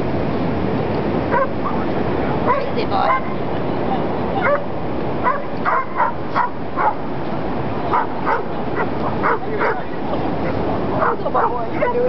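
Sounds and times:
steady rushing noise: 0.0 - 12.0
dog barking and yelping: 1.3 - 3.4, 4.4 - 7.0, 7.9 - 9.9, 11.0 - 12.0.

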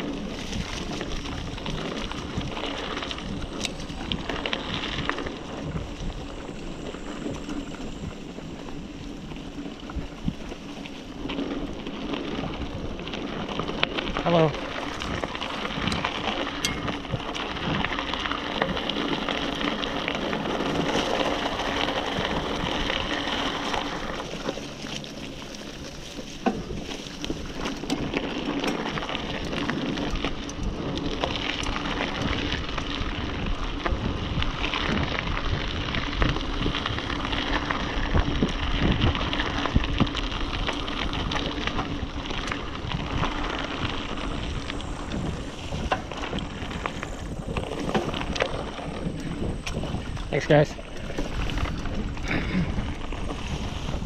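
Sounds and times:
wind on microphone: 0.0 - 24.5, 25.7 - 54.0
bike rattling and knocking: 0.0 - 54.0
bike tyres rolling on dirt: 0.0 - 54.0.

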